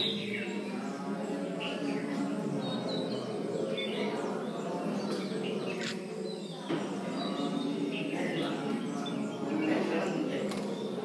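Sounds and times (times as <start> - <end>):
murmur of many voices: 0.0 - 11.0
bird chirps: 5.6 - 6.5.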